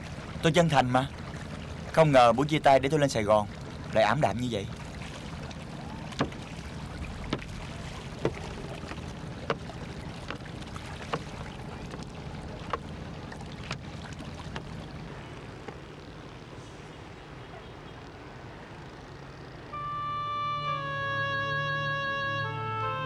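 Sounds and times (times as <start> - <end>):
boat engine low hum: 0.0 - 23.0
sharp knocks: 6.1 - 6.5.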